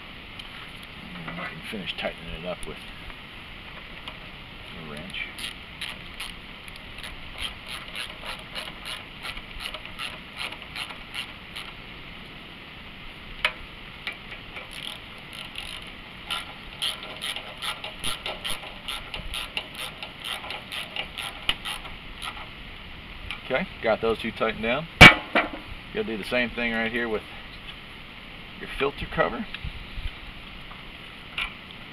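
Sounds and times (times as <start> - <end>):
ratchet wrench clicking: 5.4 - 11.8, 14.6 - 22.5.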